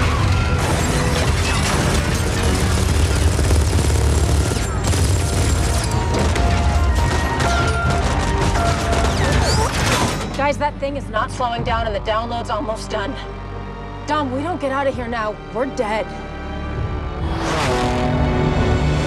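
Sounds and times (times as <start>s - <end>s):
dramatic music score: 0.0s - 19.0s
rapid gunfire: 0.2s - 9.8s.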